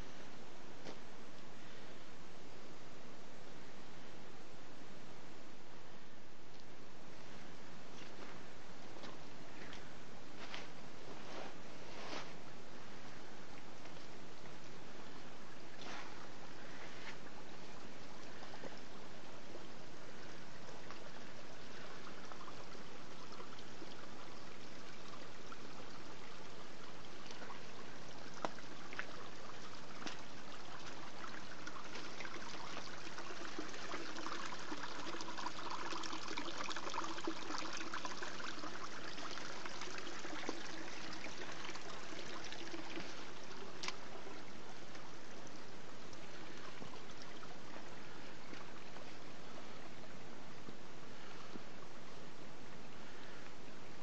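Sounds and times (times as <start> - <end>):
stream trickling over rocks: 13.0 - 54.0.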